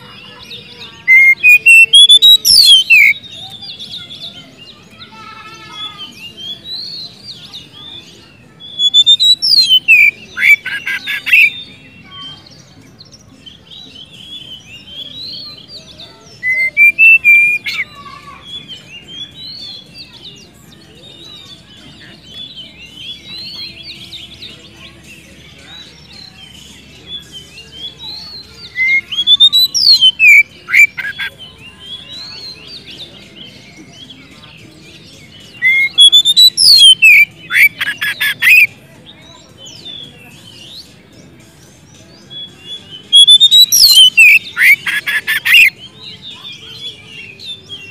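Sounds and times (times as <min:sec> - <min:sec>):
bird trills: 0:00.0 - 0:04.3, 0:08.7 - 0:11.6, 0:14.3 - 0:20.2, 0:26.1 - 0:32.8, 0:35.4 - 0:38.7, 0:42.9 - 0:45.8
bird singing whistled phrases: 0:01.0 - 0:04.7, 0:08.1 - 0:12.4, 0:14.0 - 0:20.1, 0:27.1 - 0:34.2, 0:35.4 - 0:38.7, 0:42.1 - 0:47.9.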